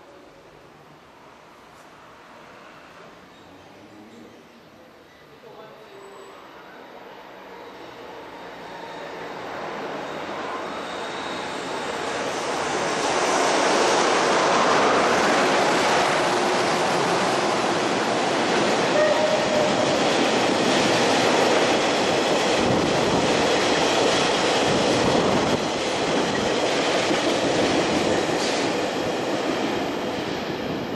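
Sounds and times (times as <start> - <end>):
electric locomotive passing: 5.9 - 30.9
train wheels on rails: 8.3 - 30.9.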